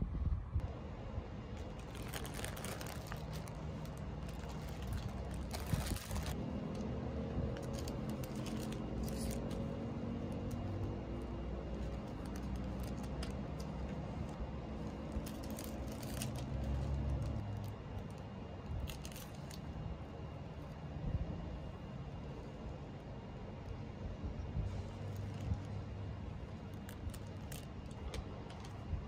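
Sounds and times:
steady low hum: 0:00.0 - 0:29.0
plastic bags crinkling: 0:01.5 - 0:18.2, 0:18.8 - 0:19.6, 0:25.1 - 0:28.7.

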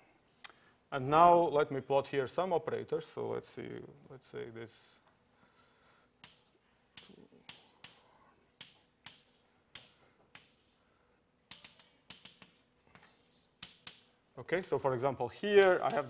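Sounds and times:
chalk tapping on a blackboard: 0:06.2 - 0:10.8, 0:11.5 - 0:14.2, 0:15.5 - 0:16.0.

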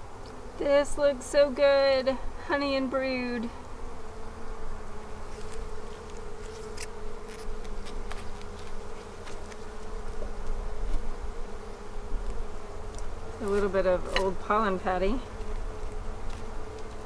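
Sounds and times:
honeybees buzzing: 0:00.0 - 0:17.0
clicks and knocks of hive tool: 0:05.4 - 0:11.0, 0:12.2 - 0:14.5.

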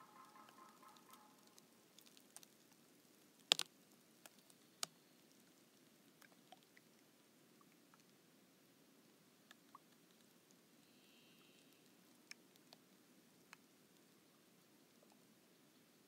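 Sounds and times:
thin ice crackling: 0:00.0 - 0:04.9
sharp ice cracks: 0:03.4 - 0:03.7.

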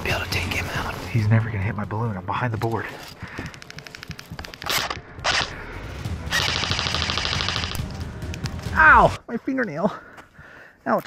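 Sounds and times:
airsoft rifle rapid fire: 0:04.5 - 0:05.5, 0:06.3 - 0:07.8.

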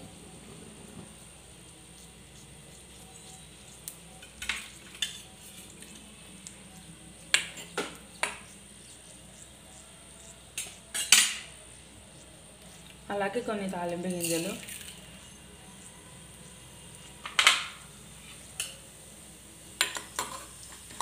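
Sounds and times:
oil sizzling: 0:00.0 - 0:21.0
metal spoon scraping a pan: 0:04.2 - 0:06.0, 0:19.8 - 0:21.0.

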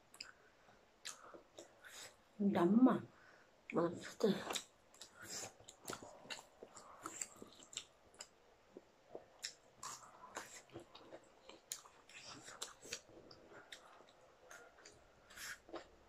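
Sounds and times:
noodles being chewed: 0:04.3 - 0:16.0.

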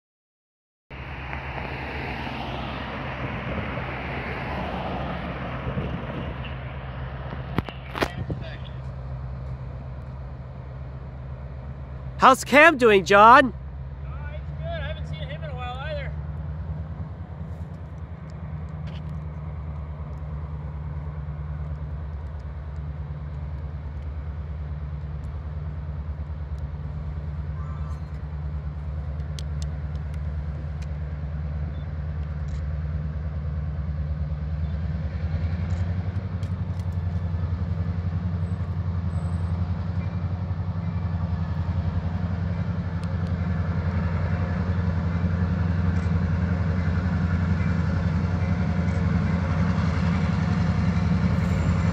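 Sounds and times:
diesel locomotive engine drone: 0:00.9 - 0:51.9.

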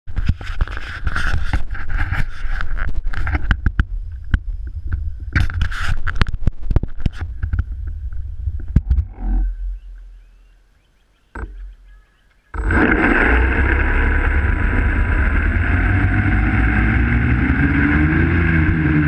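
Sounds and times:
wind buffeting on microphone: 0:00.1 - 0:10.2
sharp knocks and clicks: 0:11.3 - 0:12.8
quadcopter motors buzzing: 0:12.5 - 0:19.0.

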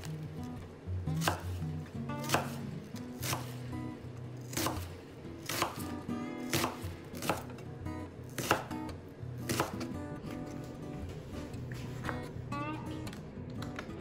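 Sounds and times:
knife slicing onion on board: 0:01.2 - 0:03.7, 0:04.4 - 0:07.6, 0:08.3 - 0:10.8.

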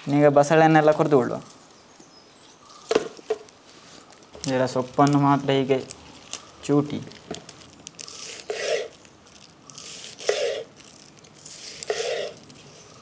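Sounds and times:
knife cutting leaves on wooden board: 0:08.0 - 0:08.9, 0:09.7 - 0:10.8, 0:11.4 - 0:12.6.

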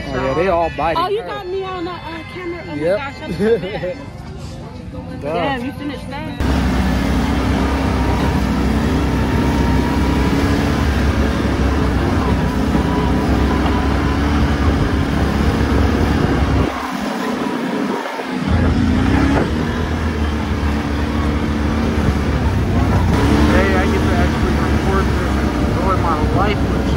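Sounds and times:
buggy engine humming: 0:03.3 - 0:26.9
low engine rumble: 0:06.1 - 0:26.9.

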